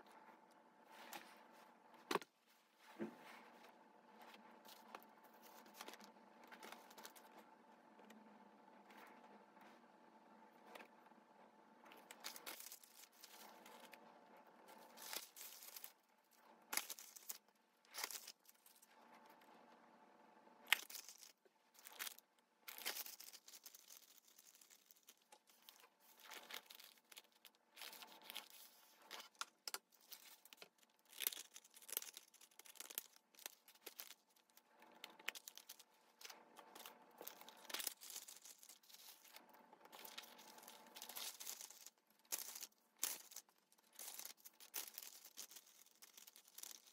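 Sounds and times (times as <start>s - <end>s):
paper rustling and crinkling: 4.2s - 7.4s, 11.9s - 14.0s, 14.7s - 16.0s, 20.8s - 46.9s
sharp paper crackle: 12.0s - 14.0s, 14.8s - 16.0s, 16.6s - 18.8s, 20.7s - 46.9s.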